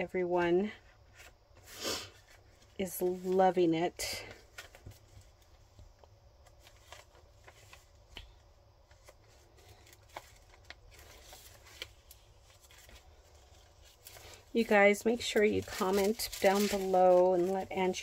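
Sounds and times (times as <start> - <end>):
paper pages turning: 4.3 - 5.8, 6.4 - 18.0.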